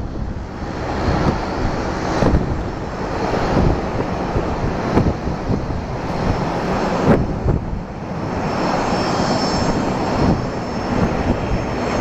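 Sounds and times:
jet engine rumble: 0:00.0 - 0:12.0
faint high whine: 0:07.7 - 0:12.0.

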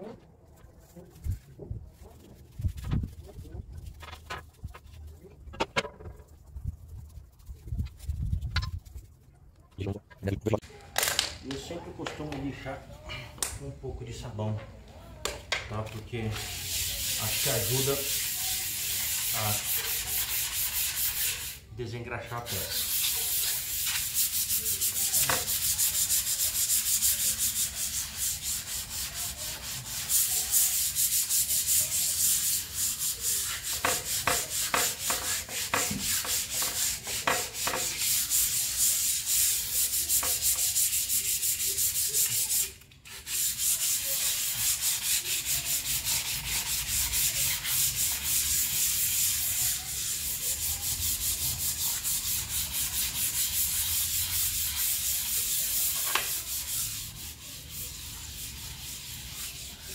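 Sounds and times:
sandpaper scrubbing on steel: 0:16.0 - 0:21.6, 0:22.3 - 0:59.9.

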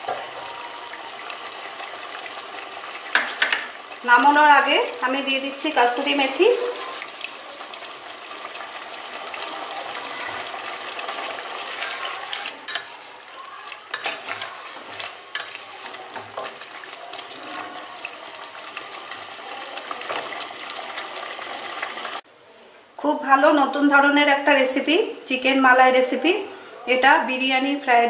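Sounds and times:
curry sizzling in a pan: 0:00.0 - 0:22.3
wooden spatula scraping a pan: 0:06.0 - 0:07.7, 0:09.4 - 0:13.0, 0:13.9 - 0:18.1.

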